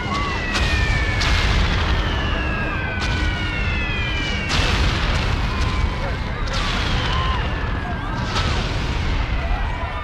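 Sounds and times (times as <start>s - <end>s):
falling whistles: 0.0s - 4.7s.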